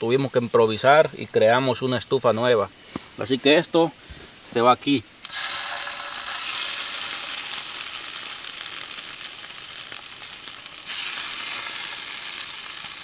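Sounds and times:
fish sizzling in hot oil: 0:04.3 - 0:13.0.

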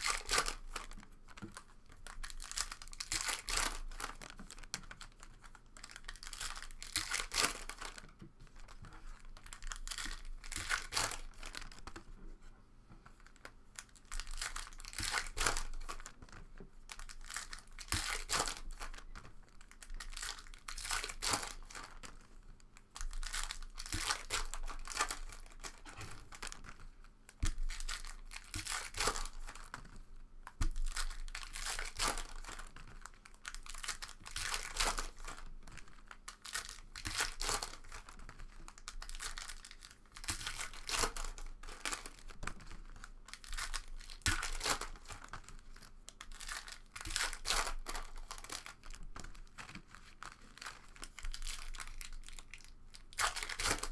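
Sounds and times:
foil wrappers tearing and crinkling: 0:00.0 - 0:04.6, 0:14.0 - 0:16.1, 0:23.0 - 0:26.6, 0:30.7 - 0:42.7, 0:43.3 - 0:53.9.

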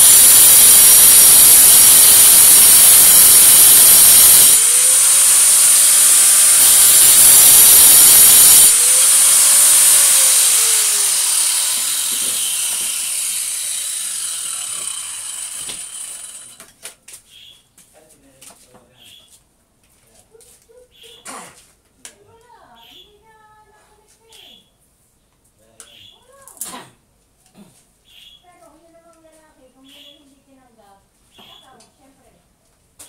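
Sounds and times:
grinder winding down: 0:00.0 - 0:16.6
angle grinder grinding: 0:00.0 - 0:16.7.

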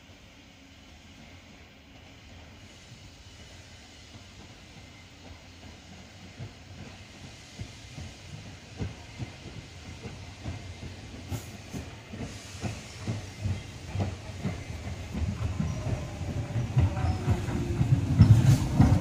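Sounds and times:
tram wheels knocking on rails: 0:08.3 - 0:19.0.

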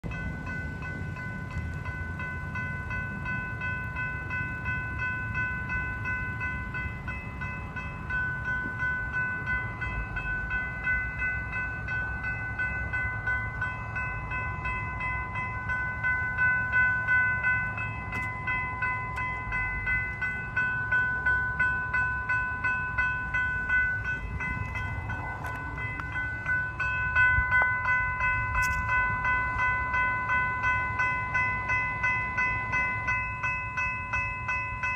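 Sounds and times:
crossing warning bell ringing: 0:00.0 - 0:34.9
low rumble: 0:23.5 - 0:29.3.

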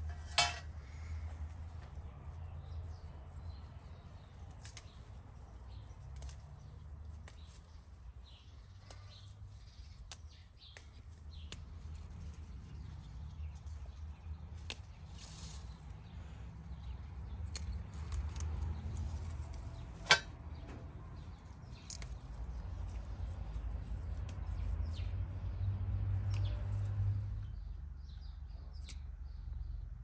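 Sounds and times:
herb stems snapping: 0:04.1 - 0:05.2, 0:06.0 - 0:16.1, 0:16.7 - 0:20.2, 0:21.2 - 0:25.2, 0:25.9 - 0:27.1, 0:28.7 - 0:29.1
leaves rustling: 0:14.5 - 0:16.1.

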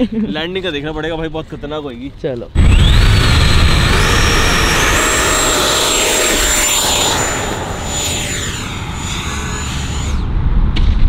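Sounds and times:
model jet motor whining: 0:02.6 - 0:10.4.

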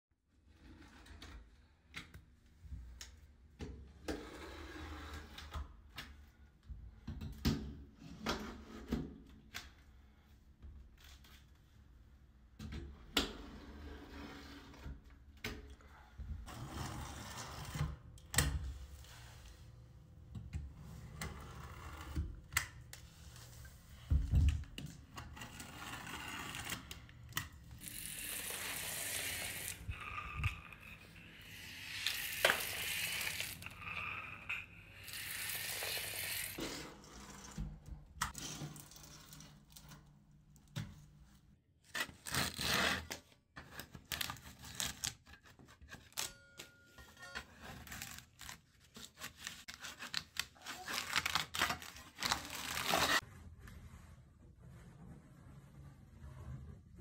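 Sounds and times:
scraper scraping paint: 0:27.8 - 0:37.6.

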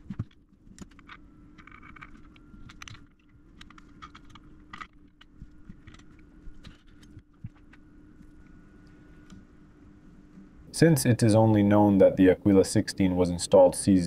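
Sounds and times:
faint high whine: 0:00.0 - 0:14.0
steady low hum: 0:00.0 - 0:14.0.

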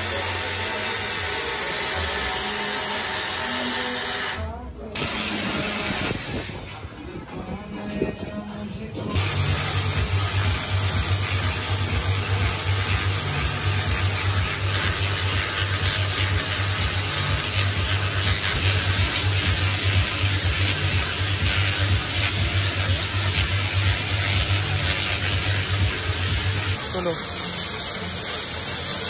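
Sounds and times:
electric arcs crackling: 0:05.0 - 0:06.6, 0:09.2 - 0:29.0.

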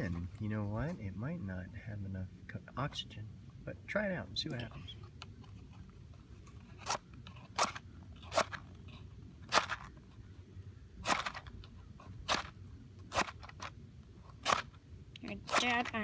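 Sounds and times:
match scraping on matchbox: 0:14.3 - 0:16.0.

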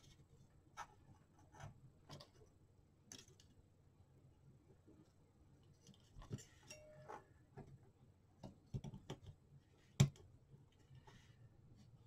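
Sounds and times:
small plastic clicks and taps: 0:08.4 - 0:09.4.

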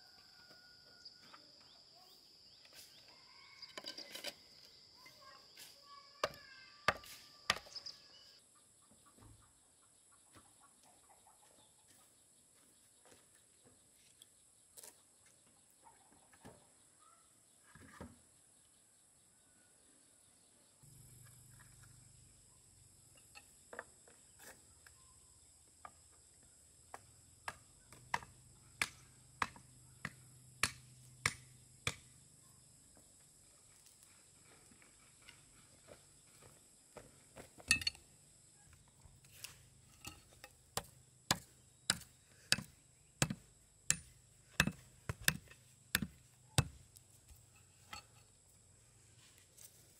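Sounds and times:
high-pitched insects droning: 0:00.0 - 0:08.4, 0:18.3 - 0:49.9
sharp chopping knocks: 0:40.8 - 0:46.8.

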